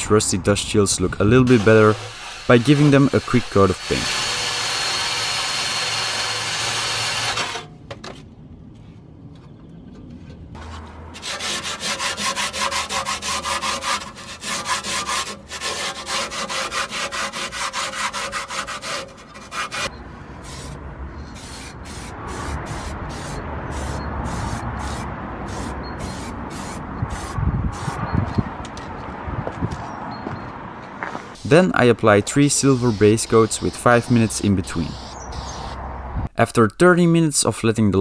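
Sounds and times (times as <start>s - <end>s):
hand scrubbing rusty metal: 1.4s - 7.6s, 10.6s - 28.0s, 32.2s - 35.7s
power tool running: 1.5s - 7.7s.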